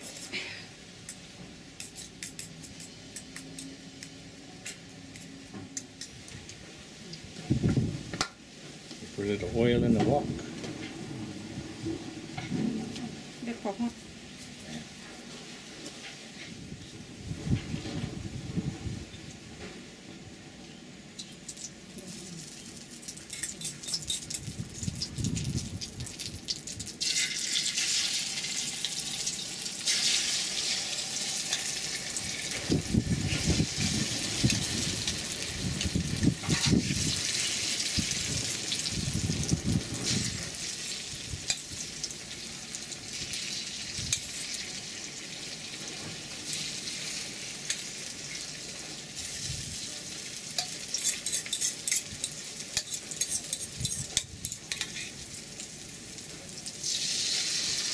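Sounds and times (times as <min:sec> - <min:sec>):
egg sizzling in hot oil: 0:21.2 - 0:57.9
metal spatula scraping a pan: 0:50.6 - 0:55.2.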